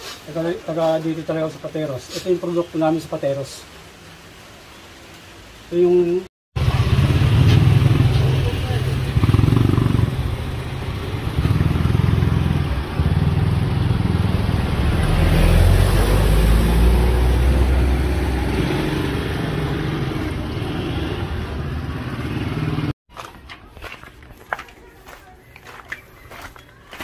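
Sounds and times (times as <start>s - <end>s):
vehicle engine rumbling: 6.6s - 24.1s.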